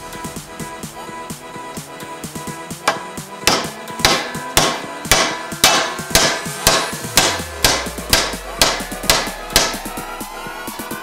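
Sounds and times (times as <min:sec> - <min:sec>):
faint background music: 0:00.0 - 0:11.0
hammer striking aluminium strip: 0:02.8 - 0:10.0.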